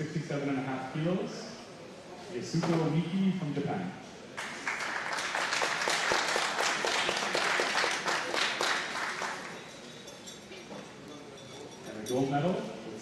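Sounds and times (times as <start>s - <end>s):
audience applauding: 4.4s - 9.8s.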